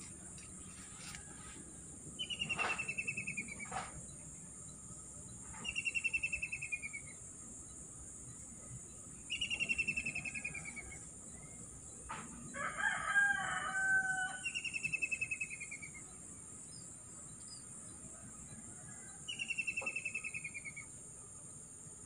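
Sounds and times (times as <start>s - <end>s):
rooster crowing: 0.7s - 1.7s, 10.0s - 11.1s, 12.5s - 14.6s.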